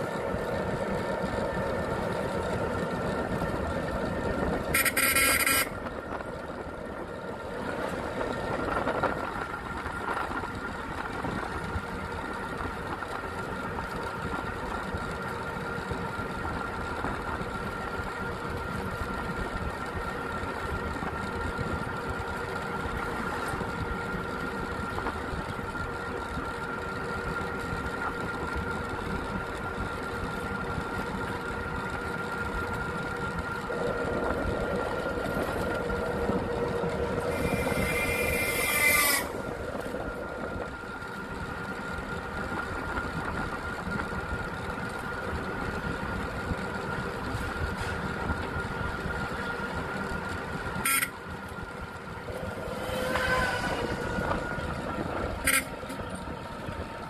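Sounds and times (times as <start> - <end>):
vehicle driving on road: 0.0 - 57.0
vehicle horn: 4.7 - 5.9, 37.3 - 39.3, 50.8 - 51.2, 52.6 - 54.3, 55.2 - 56.2.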